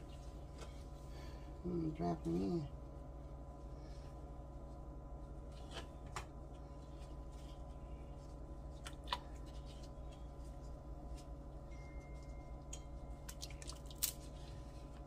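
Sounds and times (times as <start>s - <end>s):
low hum: 0.0s - 15.0s.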